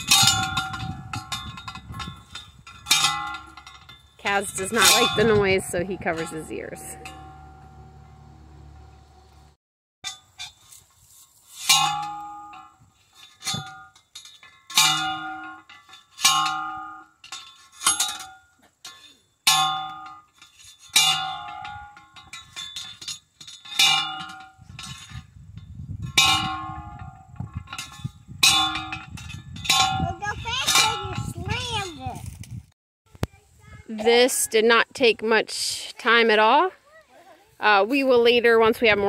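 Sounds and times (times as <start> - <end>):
post driver clanging on metal: 0.0 - 10.6, 11.6 - 32.0.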